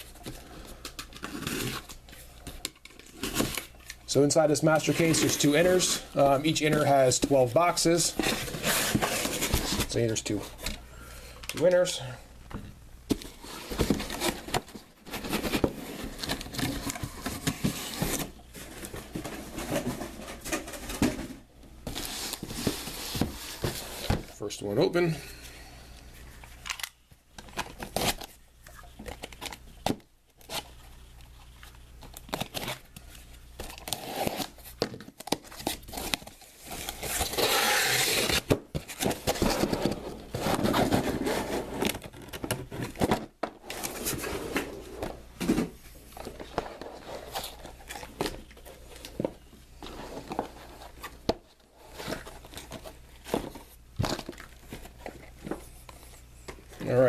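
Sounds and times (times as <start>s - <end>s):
tape tearing: 1.0s - 2.0s, 32.0s - 43.0s
cardboard scraping and rustling: 1.1s - 10.8s, 13.1s - 24.4s, 33.6s - 57.0s.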